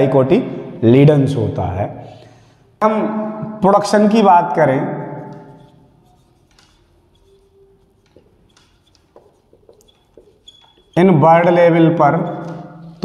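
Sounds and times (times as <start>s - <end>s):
marker scratching on whiteboard: 5.1s - 13.0s.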